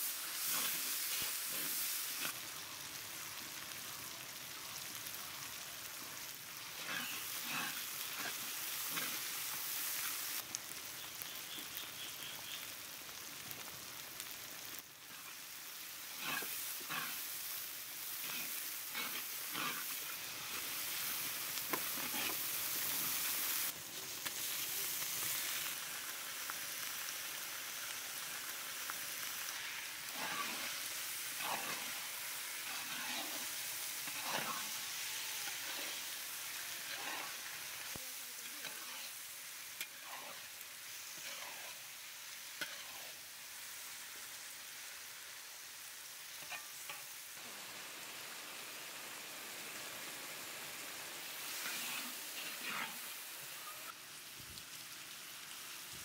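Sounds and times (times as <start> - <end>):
prawns sizzling in hot oil: 0.0 - 56.0
metal spatula scraping wok: 16.1 - 17.3, 18.2 - 23.7, 29.5 - 37.8, 38.4 - 39.2, 39.8 - 41.8, 42.6 - 43.2, 46.4 - 47.1, 51.6 - 53.1.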